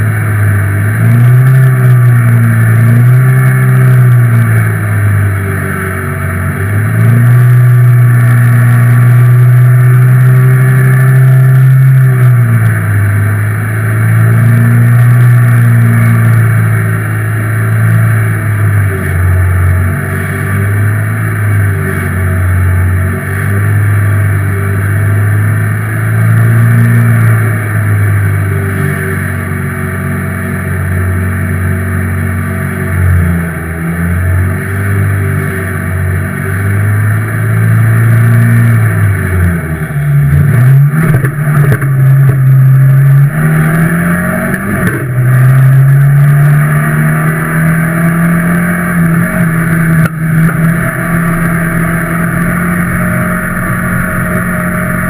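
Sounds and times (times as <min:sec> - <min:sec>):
race car engine: 0:00.0 - 0:55.0.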